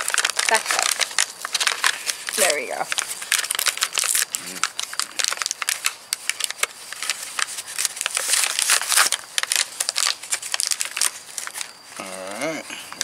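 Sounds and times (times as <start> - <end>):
plastic packaging crinkling: 0.0 - 12.2.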